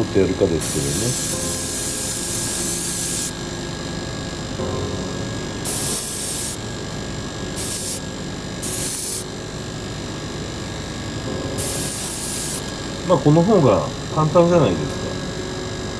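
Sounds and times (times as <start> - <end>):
steady hum: 0.0 - 15.9
airbrush spraying hiss: 0.6 - 3.3, 5.6 - 6.6, 7.6 - 8.0, 8.6 - 9.3, 11.6 - 12.7.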